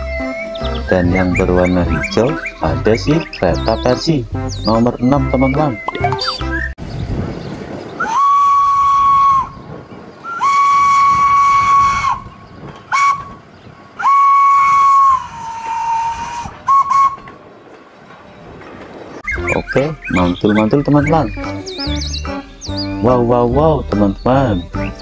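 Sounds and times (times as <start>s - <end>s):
steam locomotive whistle: 8.0s - 17.4s.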